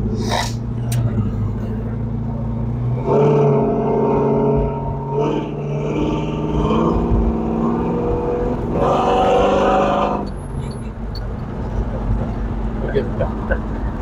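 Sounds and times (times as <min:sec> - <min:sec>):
engine revving under throttle: 0:02.4 - 0:10.3.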